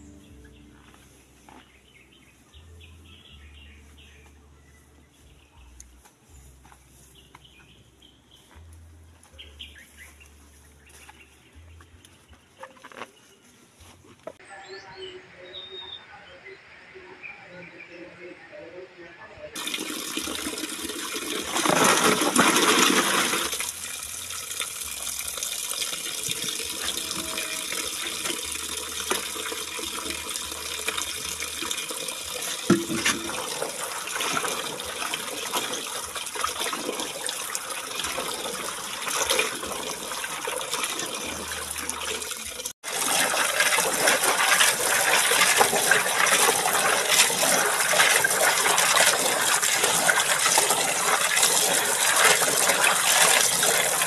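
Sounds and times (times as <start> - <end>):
tap water splashing into basin: 19.6 - 54.0.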